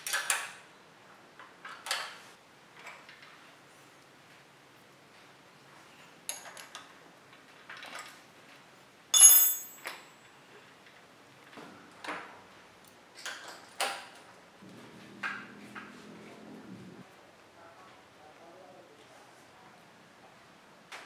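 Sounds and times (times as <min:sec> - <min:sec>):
sharp ringing metal clink: 0:09.2 - 0:10.1.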